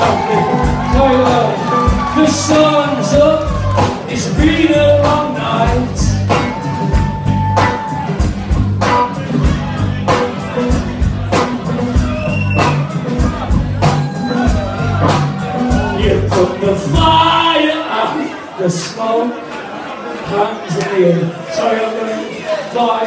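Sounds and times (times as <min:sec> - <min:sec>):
man singing: 0:00.0 - 0:06.6, 0:15.6 - 0:19.4, 0:20.2 - 0:23.0
drum kit: 0:00.0 - 0:17.9.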